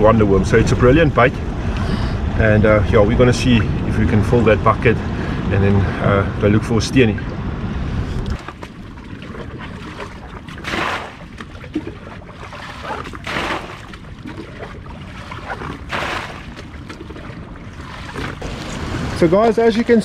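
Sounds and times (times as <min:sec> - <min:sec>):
surf: 0:00.0 - 0:20.0
wind: 0:00.0 - 0:20.0
water splashing from bucket: 0:08.4 - 0:19.6.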